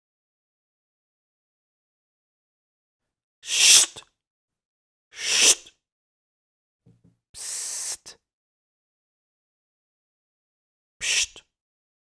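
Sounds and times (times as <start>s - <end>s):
person whispering psst: 7.4s - 8.2s, 11.0s - 11.4s.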